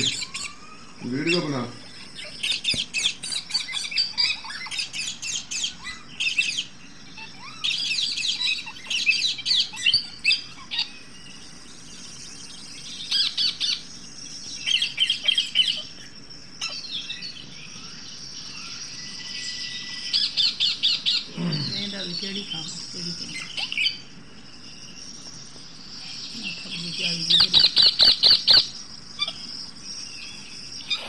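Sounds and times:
parakeets chattering and screeching: 0.0s - 31.0s.

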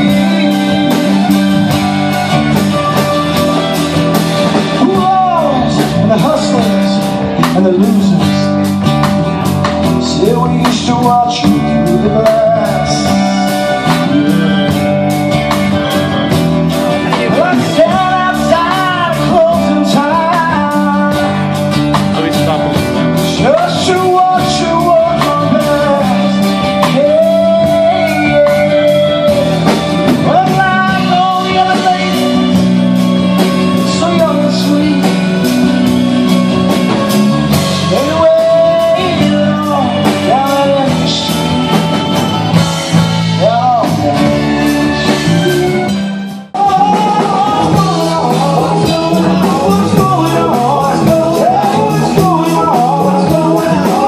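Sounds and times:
acoustic guitar: 0.0s - 54.0s
bending melody line: 0.0s - 54.0s
drum kit beat: 0.0s - 54.0s
electric bass: 0.0s - 54.0s.

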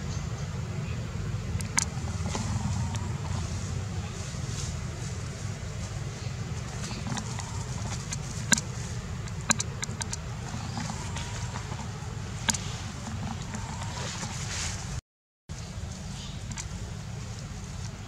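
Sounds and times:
wind rumble on microphone: 0.2s - 15.0s
sharp clicks: 1.6s - 2.6s, 6.9s - 11.8s.

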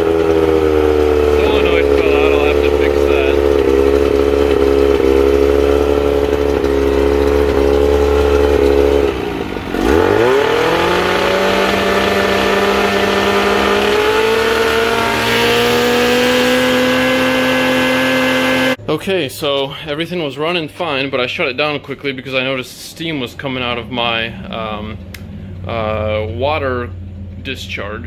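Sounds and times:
outboard motor running: 0.0s - 18.8s.

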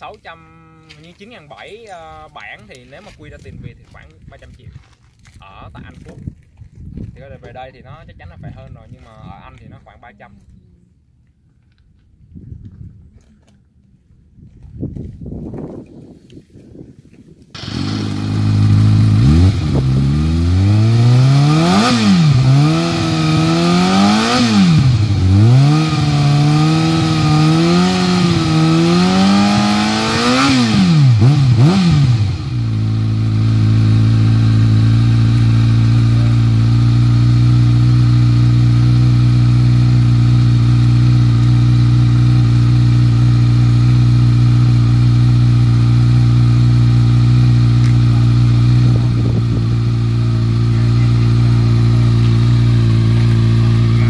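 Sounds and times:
motorcycle engine idling: 17.6s - 29.1s, 30.4s - 54.0s
motorcycle engine starting: 17.6s - 54.0s
motorcycle throttle blips: 17.6s - 54.0s.

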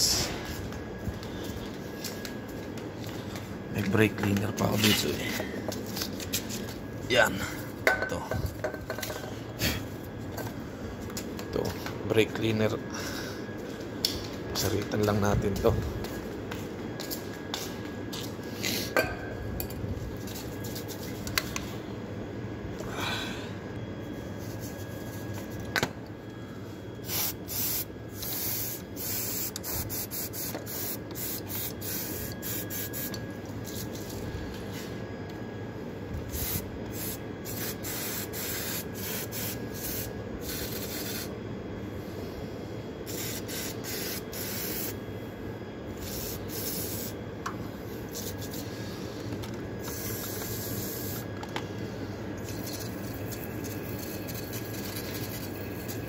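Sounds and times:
aerosol spray hissing: 27.0s - 33.1s, 36.4s - 41.3s, 43.1s - 45.0s, 46.0s - 47.2s.

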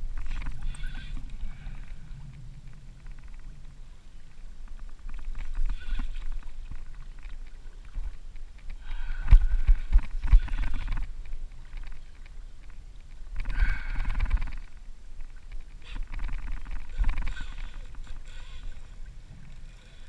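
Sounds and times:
fishing reel whirring: 0.1s - 2.0s, 8.7s - 12.0s, 13.4s - 14.8s, 15.7s - 20.0s.

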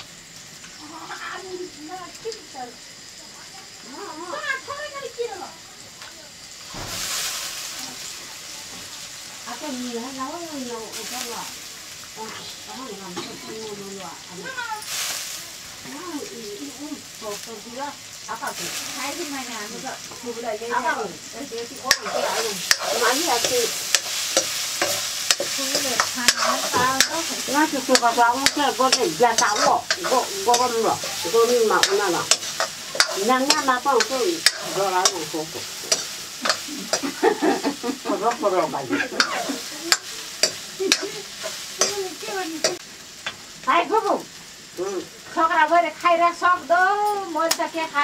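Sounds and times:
frying sizzle: 0.0s - 48.0s
metal ladle scraping wok: 21.8s - 37.3s.

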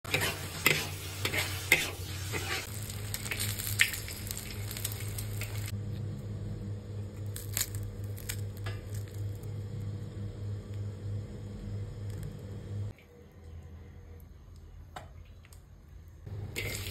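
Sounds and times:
spatula scraping a pan: 0.0s - 3.4s
meat and vegetables sizzling in a wok: 0.0s - 5.8s
low steady hum: 2.0s - 16.9s
crisp wrapper crackling: 2.7s - 5.7s, 7.2s - 9.5s.

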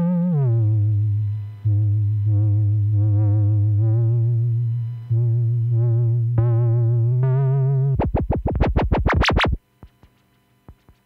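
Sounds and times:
synthesizer bass note: 0.0s - 9.6s
synthesizer fast stabs: 7.9s - 10.0s.

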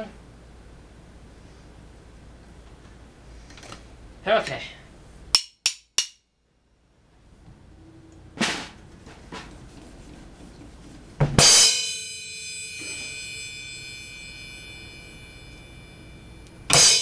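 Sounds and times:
drum hits: 8.4s - 9.6s, 11.2s - 12.0s, 16.7s - 17.0s
cymbal crash ringing: 11.4s - 17.0s.

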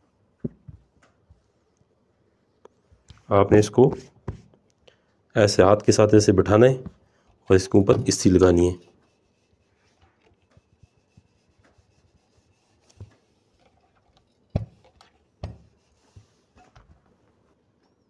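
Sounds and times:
iron rubbing over fabric: 8.9s - 13.6s.

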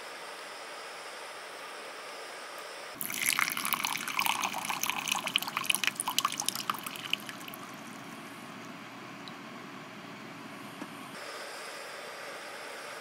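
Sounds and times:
liquid pouring into a cup: 3.0s - 8.2s.

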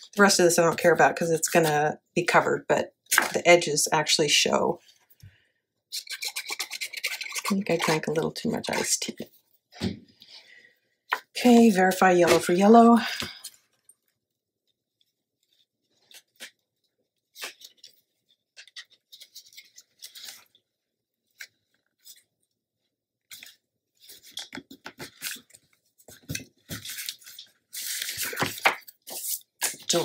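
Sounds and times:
paper rustling and tapping: 24.1s - 30.0s.

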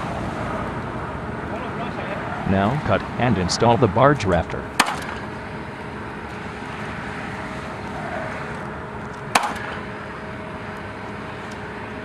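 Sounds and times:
outdoor background noise: 0.0s - 12.0s
nail gun firing: 4.8s - 5.2s, 9.4s - 9.8s.

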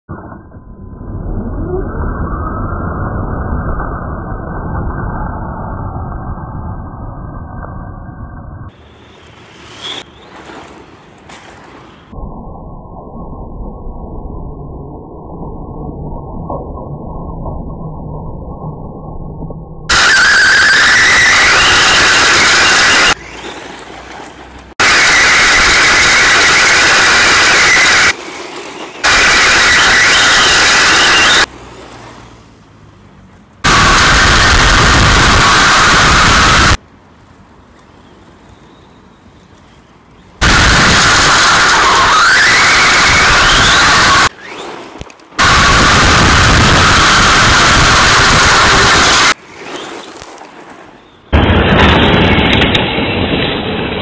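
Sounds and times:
gravel spraying: 8.7s - 12.2s, 19.9s - 33.1s, 46.9s - 52.3s
rc car engine rumble: 15.0s - 36.8s
motor whine rising in pitch: 19.9s - 23.6s, 24.8s - 28.2s, 29.0s - 31.5s, 33.6s - 36.8s, 40.4s - 44.6s, 45.4s - 49.4s.

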